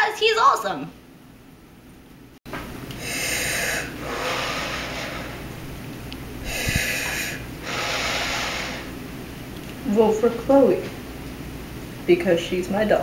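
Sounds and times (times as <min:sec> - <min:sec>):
heavy hissing breathing: 0:02.9 - 0:05.8, 0:06.4 - 0:09.0.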